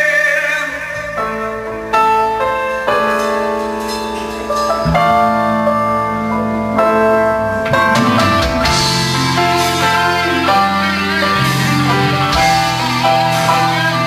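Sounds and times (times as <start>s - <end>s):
guitar and keyboard chords: 0.8s - 14.0s
bass notes: 1.0s - 14.0s
cymbals washing: 2.9s - 6.9s, 7.8s - 14.0s.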